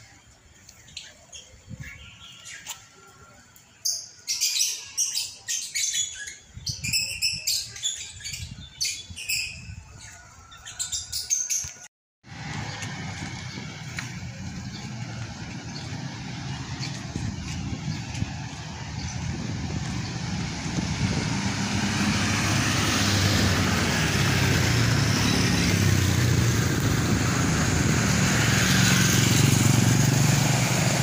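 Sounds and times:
street traffic rumble: 0:00.0 - 0:31.0
birds chirping and squawking: 0:03.8 - 0:11.8, 0:12.7 - 0:21.2.

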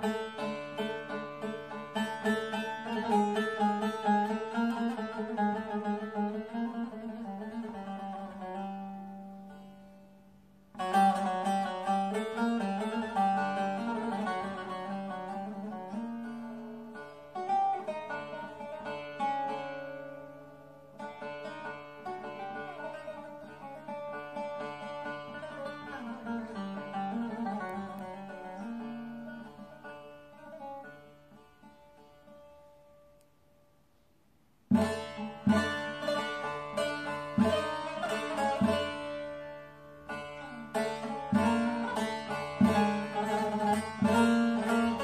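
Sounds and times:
bowed fiddle: 0:00.0 - 0:33.4, 0:34.7 - 0:45.0
plucked lute: 0:00.0 - 0:33.8, 0:34.6 - 0:45.0.

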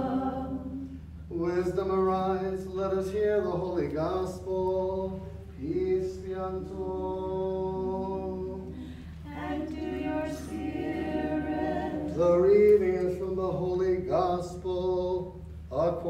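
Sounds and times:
choir chanting: 0:00.0 - 0:00.9, 0:09.3 - 0:12.4.

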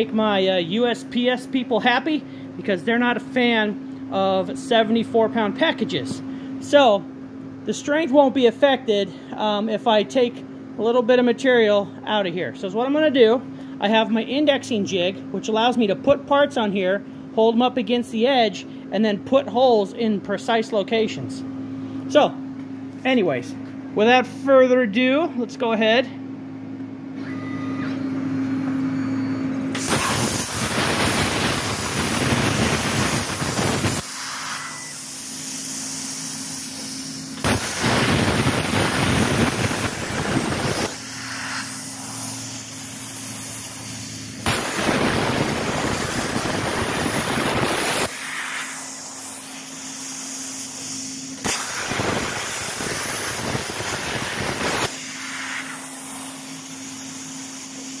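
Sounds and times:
steady low hum: 0:00.0 - 0:58.0
plasma cutter hissing arc: 0:29.7 - 0:58.0.

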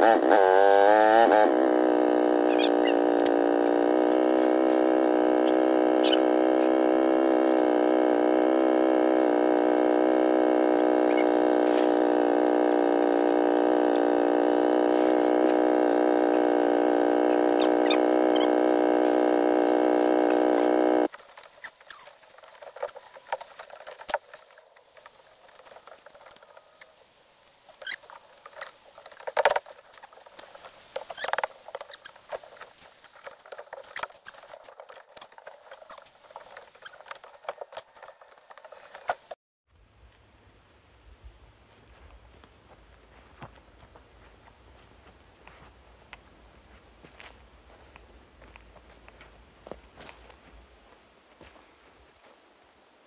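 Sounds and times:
small engine droning: 0:00.0 - 0:26.8, 0:27.8 - 0:40.0.

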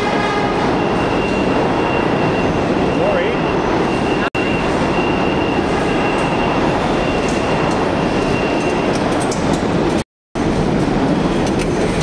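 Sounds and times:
subway train rumble: 0:00.0 - 0:12.0
high wheel squeal: 0:00.6 - 0:09.0.

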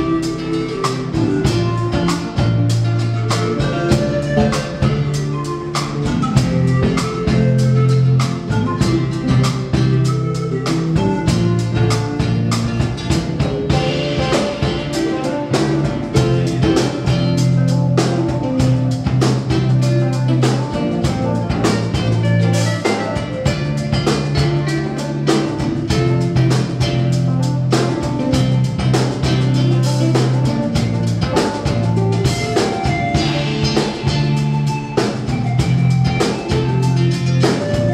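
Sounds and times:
panpipes playing: 0:00.0 - 0:11.6
live band playing: 0:00.0 - 0:37.9.

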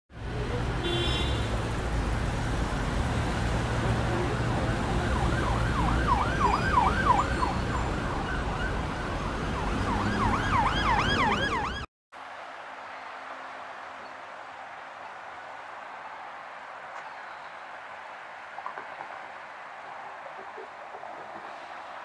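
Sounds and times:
street traffic rumble: 0:00.1 - 0:22.0
ambulance siren yelping: 0:04.3 - 0:11.9.

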